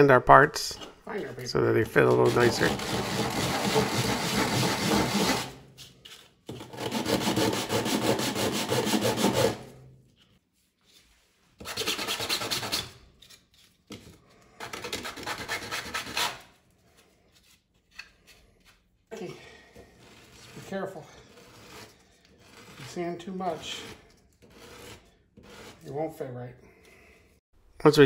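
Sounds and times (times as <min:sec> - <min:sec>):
plastic rubbed on sandpaper: 0:02.0 - 0:05.5, 0:20.0 - 0:26.0.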